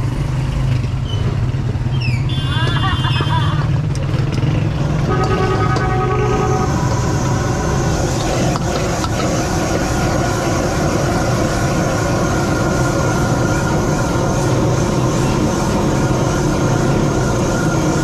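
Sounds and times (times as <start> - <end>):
gas burner roaring: 3.4 - 18.0.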